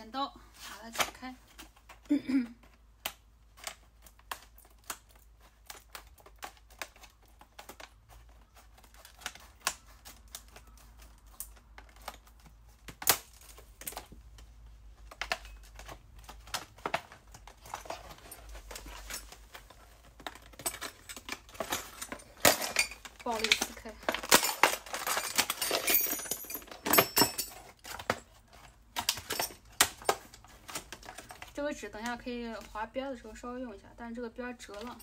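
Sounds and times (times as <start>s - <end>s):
scissors snipping packaging: 3.0s - 14.2s.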